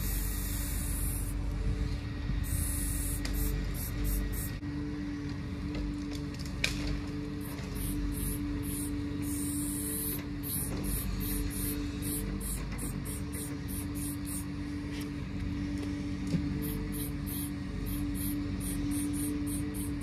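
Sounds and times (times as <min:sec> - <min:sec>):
steady low hum: 0:00.0 - 0:06.0, 0:07.0 - 0:20.0
spray paint can hissing: 0:02.5 - 0:04.5, 0:07.8 - 0:14.4, 0:16.6 - 0:20.0.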